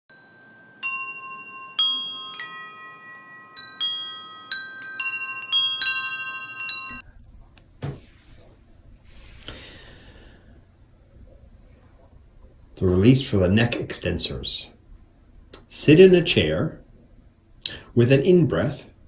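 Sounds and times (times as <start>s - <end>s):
chimes ringing a tune: 0.1s - 7.0s.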